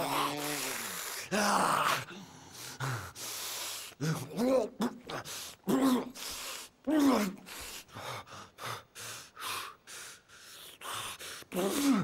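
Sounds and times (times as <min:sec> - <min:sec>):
person panting hard: 0:07.5 - 0:12.0.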